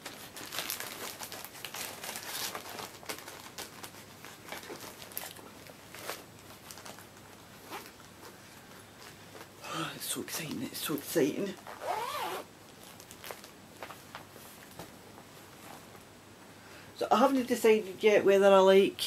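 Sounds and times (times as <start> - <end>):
paper and packaging rustling: 0.0 - 9.5, 12.7 - 16.0.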